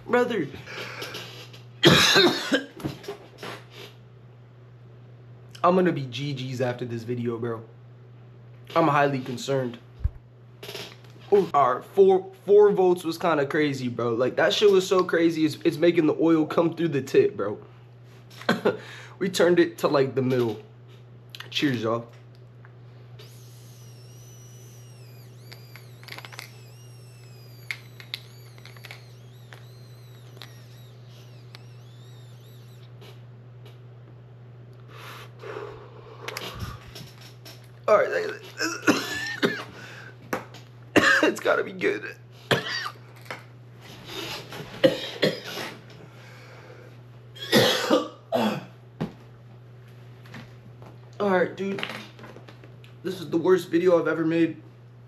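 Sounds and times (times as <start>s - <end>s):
young man coughing hard: 1.8s - 2.8s, 38.6s - 39.8s, 41.0s - 41.4s, 42.5s - 43.0s, 44.8s - 45.7s, 47.4s - 48.8s
low hum: 22.1s - 40.1s
thin air whistle: 23.2s - 33.0s
small clicks and pops: 25.0s - 33.8s.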